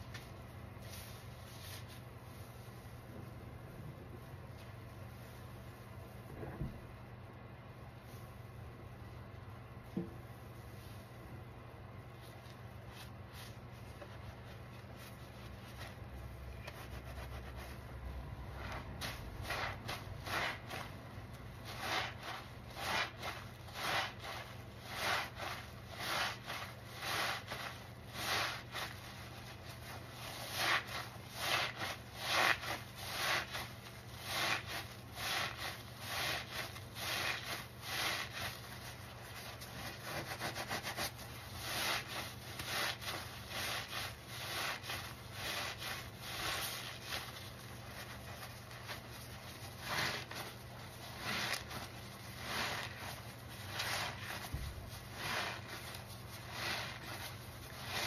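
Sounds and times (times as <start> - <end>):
sponges squelching in suds: 12.1 - 58.0.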